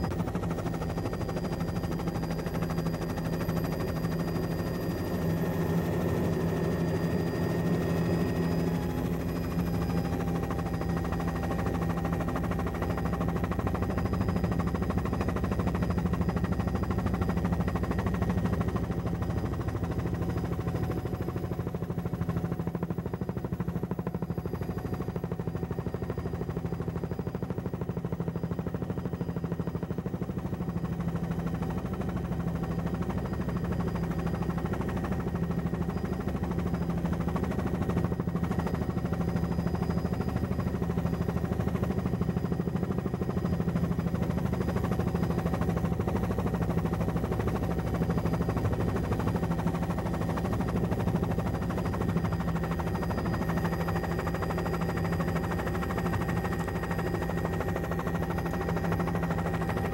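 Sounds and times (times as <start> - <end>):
aircraft engine drone: 0.0 - 27.8, 29.6 - 59.9
faint steady whines: 0.0 - 59.9.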